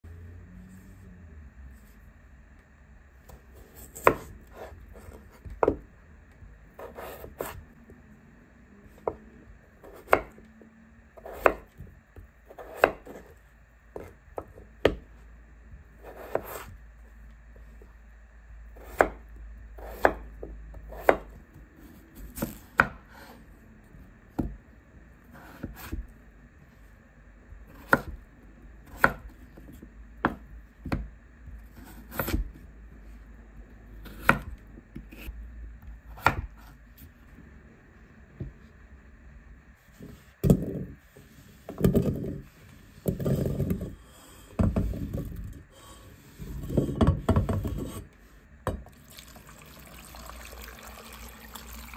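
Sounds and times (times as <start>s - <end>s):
knife cutting potatoes: 3.3s - 5.8s, 6.7s - 7.6s, 9.8s - 10.4s, 11.2s - 11.8s, 12.5s - 13.4s, 16.0s - 16.8s, 18.8s - 21.4s, 31.7s - 32.6s.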